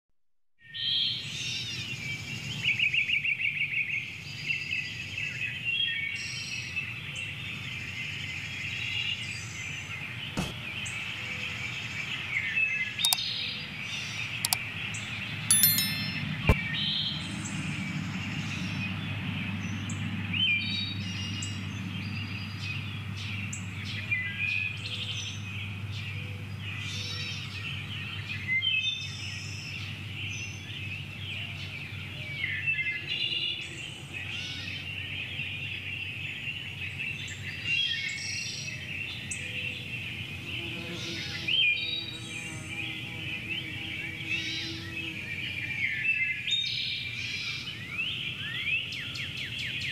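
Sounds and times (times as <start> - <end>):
songbirds chirping and trilling: 0.7 - 16.3, 16.9 - 49.9
sharp click: 15.5 - 16.6.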